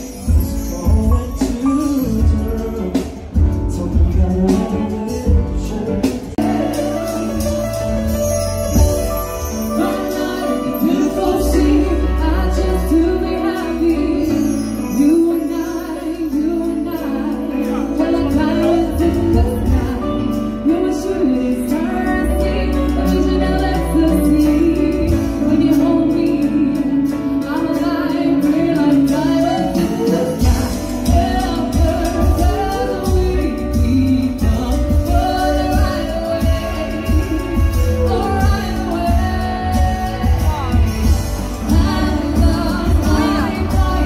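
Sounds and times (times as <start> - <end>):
live band music: 0.0 - 44.0
woman singing: 9.6 - 44.0
heavy bass line: 29.0 - 44.0.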